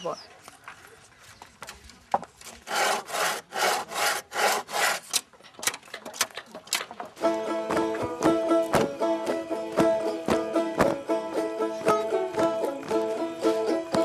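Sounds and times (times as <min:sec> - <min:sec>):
sharp wooden clicks: 0:01.6 - 0:07.2
hand saw cutting wood: 0:02.5 - 0:06.3
banjo-like plucked-string music: 0:06.0 - 0:14.0.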